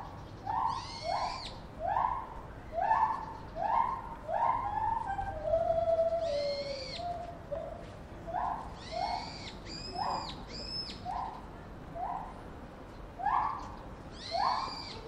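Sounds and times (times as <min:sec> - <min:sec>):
chimpanzee hooting: 0:00.4 - 0:07.6
chimpanzee squealing: 0:00.5 - 0:05.4, 0:14.2 - 0:15.0.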